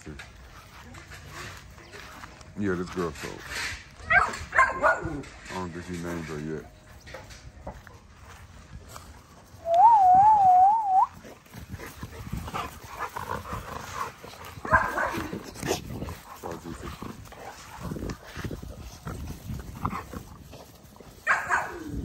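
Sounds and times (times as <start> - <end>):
puppies scuffling: 11.1 - 22.0.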